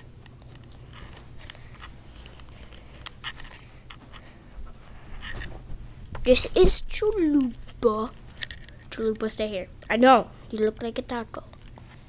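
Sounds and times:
soft clicks and rustles: 0:00.0 - 0:09.4.

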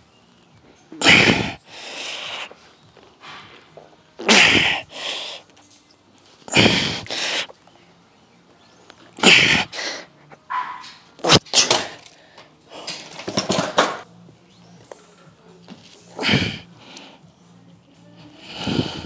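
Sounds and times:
man breathing hard: 0:01.0 - 0:02.6, 0:04.4 - 0:05.5, 0:06.5 - 0:07.5, 0:16.2 - 0:17.3, 0:18.2 - 0:19.0.

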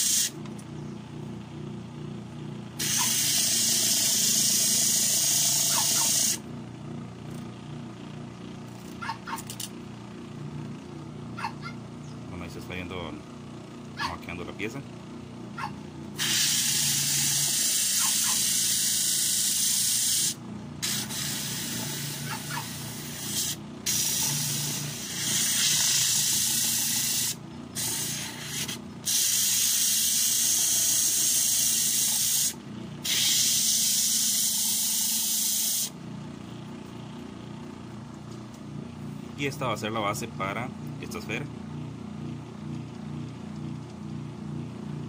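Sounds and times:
low motor hum: 0:00.0 - 0:45.0
wood sanding on sandpaper disc: 0:02.8 - 0:06.4, 0:16.2 - 0:35.8.

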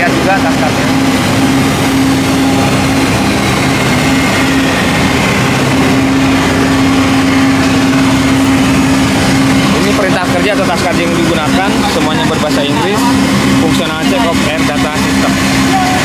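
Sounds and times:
machinery drone: 0:00.0 - 0:16.0.

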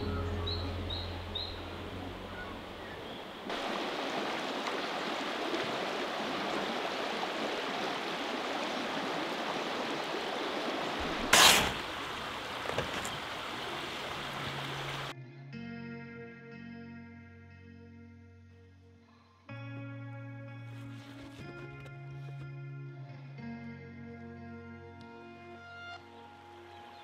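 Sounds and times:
river water rushing: 0:00.0 - 0:15.1.

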